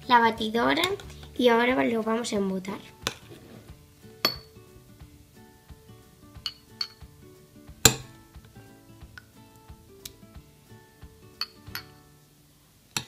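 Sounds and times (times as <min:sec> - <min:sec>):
soft background music: 0:00.0 - 0:13.0
metal spoon clinking on ceramic and glass: 0:04.2 - 0:04.5, 0:06.4 - 0:07.1, 0:11.4 - 0:12.0.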